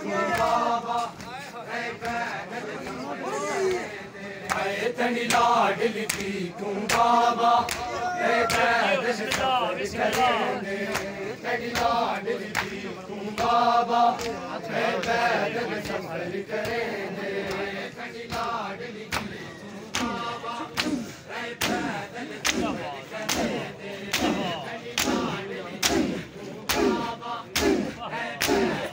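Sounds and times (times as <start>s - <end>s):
men chanting in chorus: 0.0s - 28.9s
hands slapping chests: 3.6s - 10.3s, 10.9s - 13.5s, 14.1s - 14.4s, 19.1s - 28.9s.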